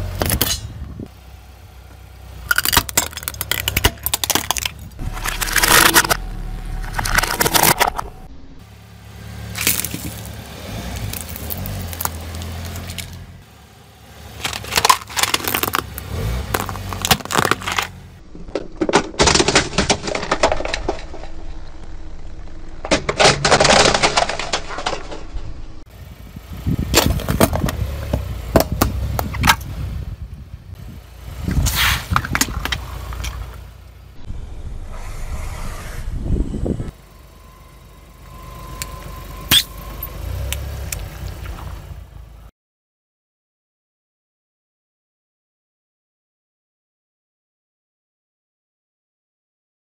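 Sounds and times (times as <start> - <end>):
low engine hum: 0.0 - 18.6, 25.2 - 42.5
plastic objects crunching under tyre: 2.5 - 8.2, 9.5 - 13.2, 14.4 - 22.0, 22.8 - 25.4, 26.8 - 29.7, 31.5 - 33.6.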